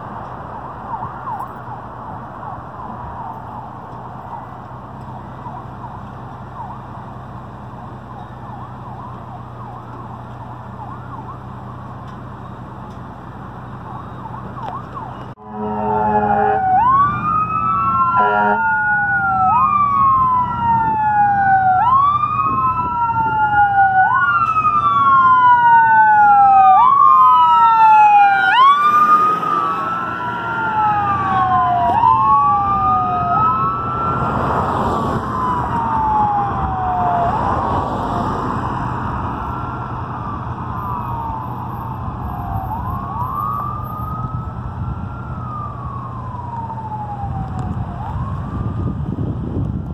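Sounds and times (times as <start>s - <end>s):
ambulance siren wailing: 0.0s - 49.9s
horn blasts: 15.4s - 16.7s, 18.2s - 18.6s.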